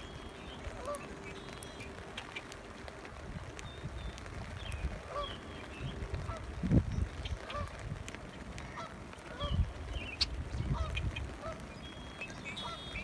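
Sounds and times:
geese honking: 0.6s - 2.5s, 5.1s - 5.5s, 7.3s - 7.8s, 8.7s - 11.8s, 12.4s - 13.0s.

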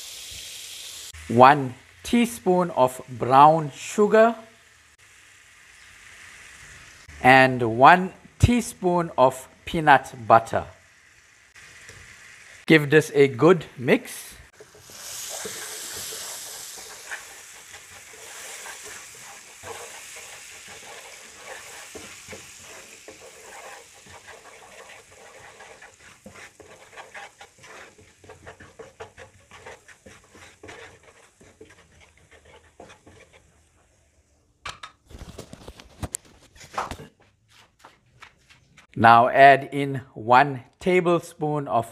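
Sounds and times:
oil sizzling in a frying pan: 0.0s - 7.3s, 8.2s - 12.7s, 14.4s - 34.4s
spatula scraping and tapping pan: 14.5s - 33.8s.

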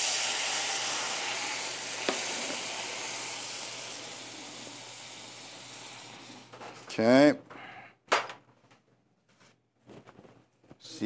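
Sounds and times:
liquid sizzling in hot skillet: 0.0s - 6.5s.

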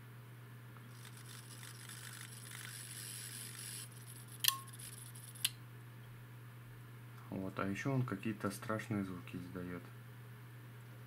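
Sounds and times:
harsh hissing buzz: 0.9s - 5.5s.

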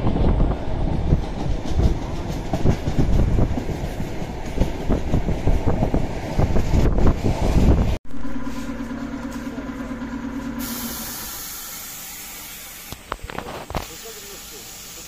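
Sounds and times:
passing train rumble: 0.0s - 15.0s
steady hum with low drone: 8.1s - 13.6s.

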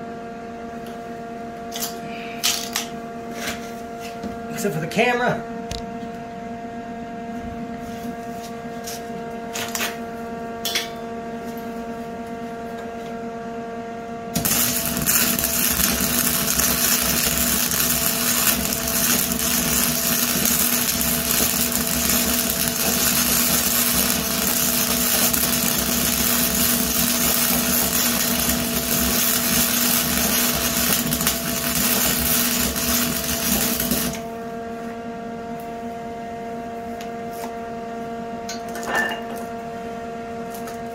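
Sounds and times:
steady hum: 0.0s - 40.9s
welding arc crackling: 14.4s - 34.2s.

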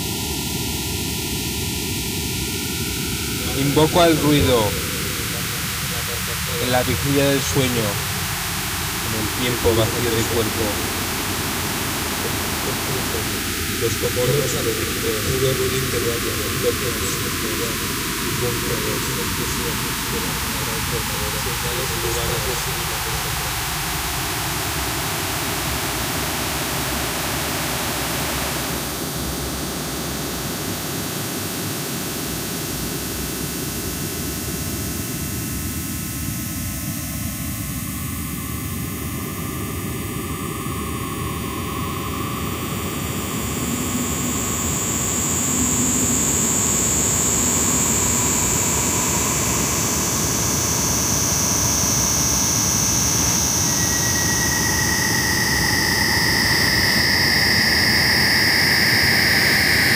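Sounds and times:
noise music hiss and rumble: 0.0s - 59.9s
high whistling tone sliding down: 51.6s - 59.9s.

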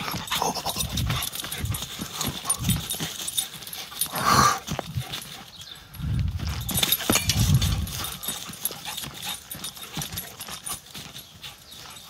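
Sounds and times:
dog paws thudding on ground: 0.0s - 12.0s.

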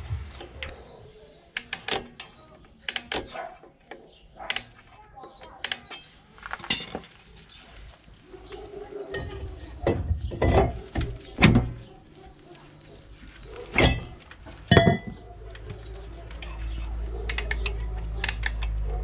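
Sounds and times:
metal clunks and knocks: 9.1s - 11.9s, 13.7s - 15.3s.

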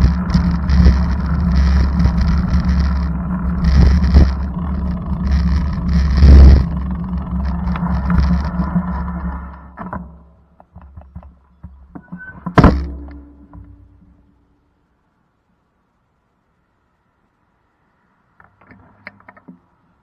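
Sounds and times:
vehicle interior rumble: 0.0s - 14.3s.

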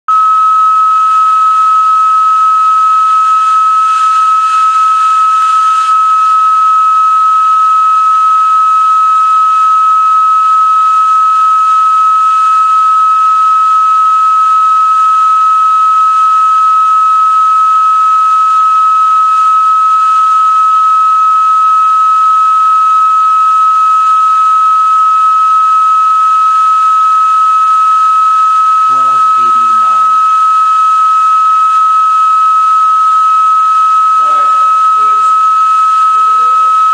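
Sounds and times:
organ pipe whistle-like note: 28.8s - 36.9s.

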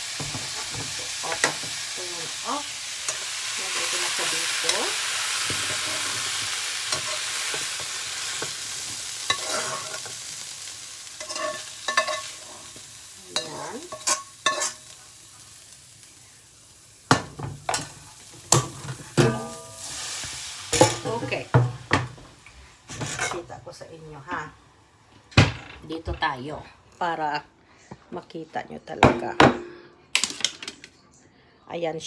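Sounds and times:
spatula scraping and knocking wok: 0.0s - 10.4s, 11.0s - 15.0s, 17.1s - 22.3s, 22.9s - 23.6s
stir-fry sizzling in a wok: 0.0s - 25.5s.

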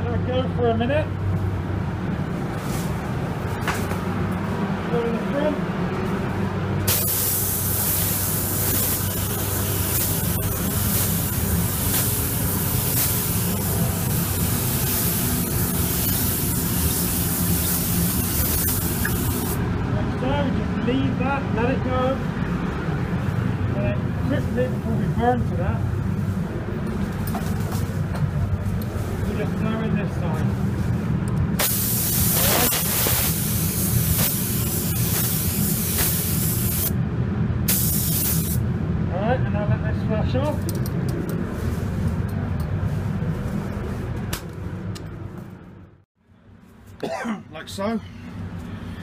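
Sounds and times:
paint spray gun hissing: 6.9s - 19.6s, 31.6s - 36.9s, 37.7s - 38.6s.

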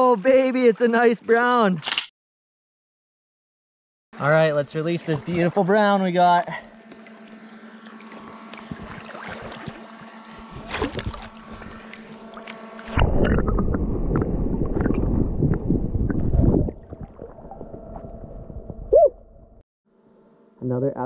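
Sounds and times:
river water heard underwater: 6.6s - 19.6s.

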